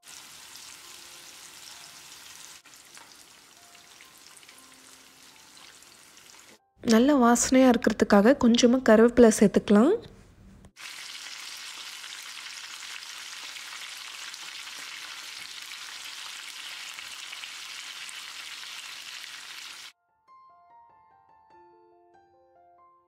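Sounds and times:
fish sizzling in hot oil: 0.0s - 6.6s, 10.8s - 19.9s
soft piano music: 0.6s - 7.8s, 20.0s - 23.0s.

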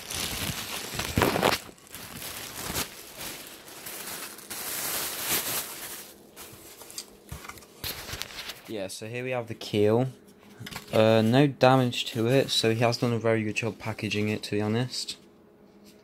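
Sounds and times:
plastic bags crinkling: 0.0s - 8.8s.

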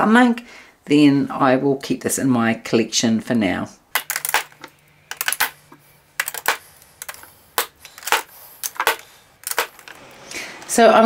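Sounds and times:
lipstick cases clicking: 4.0s - 10.0s.

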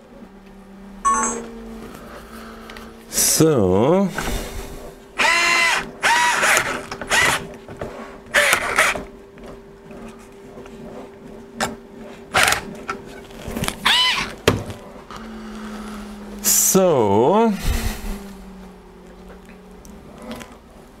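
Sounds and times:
electric screwdriver whirring: 5.2s - 7.5s, 8.3s - 9.0s, 12.4s - 12.6s.

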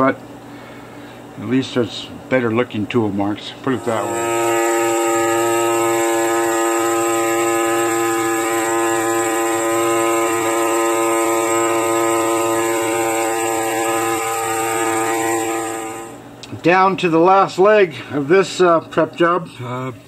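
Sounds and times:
pneumatic air scribe buzzing: 3.7s - 16.2s.

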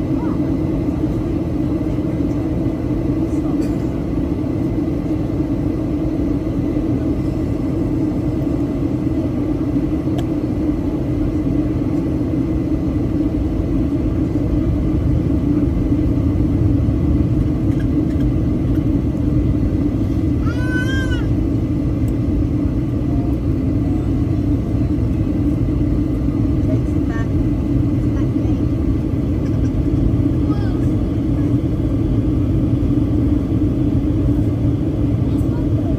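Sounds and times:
airliner cabin engine drone: 0.0s - 35.9s.

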